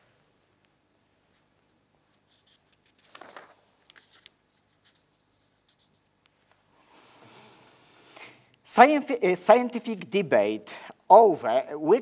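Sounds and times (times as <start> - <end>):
faint rustle: 0.0 - 6.7.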